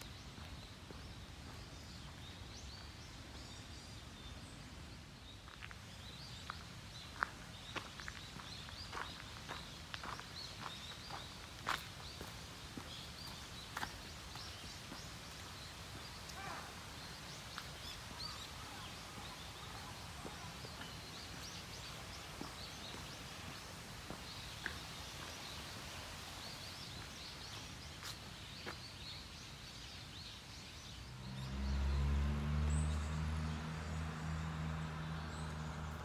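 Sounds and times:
small birds chirping: 0:00.0 - 0:32.1.

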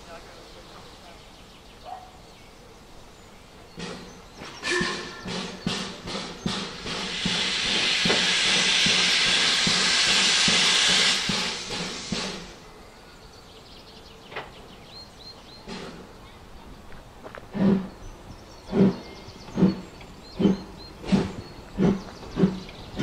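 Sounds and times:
steam locomotive chuffing: 0:03.7 - 0:12.6, 0:15.5 - 0:16.3, 0:17.4 - 0:23.0
steam hiss: 0:03.8 - 0:12.6, 0:15.6 - 0:16.1, 0:17.5 - 0:18.0, 0:18.7 - 0:23.0.

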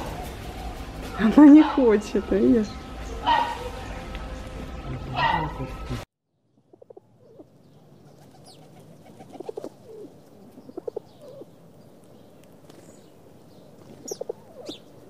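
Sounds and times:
pigeons cooing: 0:00.0 - 0:02.0, 0:06.7 - 0:15.0.

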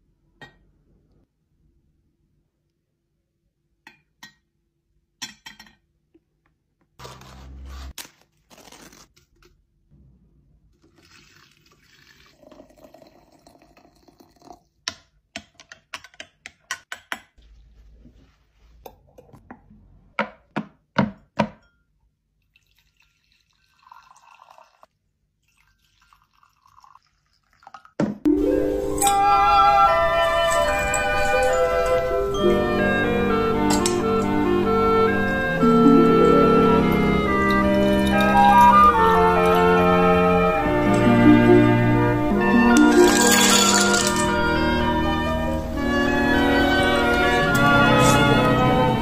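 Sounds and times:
water poured into teapot: 0:10.8 - 0:14.7, 0:22.4 - 0:28.0, 0:28.8 - 0:32.2
tea poured into glass cups: 0:10.8 - 0:14.8, 0:22.4 - 0:35.1, 0:37.5 - 0:40.0, 0:42.7 - 0:45.0
glass and spoon clinks: 0:21.6 - 0:21.9, 0:42.8 - 0:44.4.

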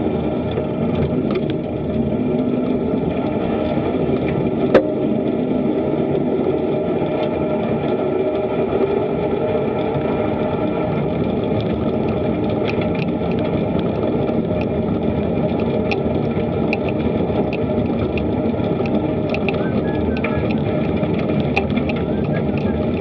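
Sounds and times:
bicycle tyre rumble: 0:00.0 - 0:23.0
wind on microphone: 0:00.0 - 0:23.0
sharp ticks: 0:11.5 - 0:23.0.

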